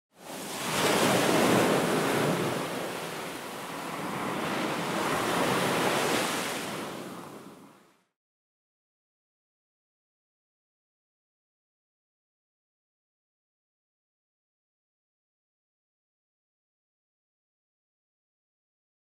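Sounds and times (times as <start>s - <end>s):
surf rushing: 0.2s - 7.7s.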